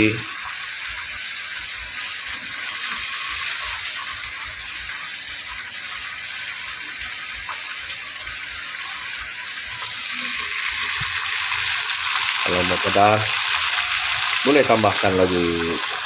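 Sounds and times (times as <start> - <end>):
fish sizzling in oil: 0.0 - 16.0.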